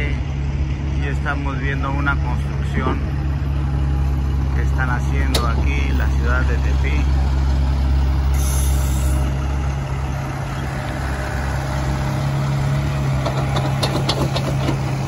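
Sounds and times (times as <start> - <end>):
heavy diesel engines running: 0.0 - 15.0
air brake hiss: 8.4 - 9.2.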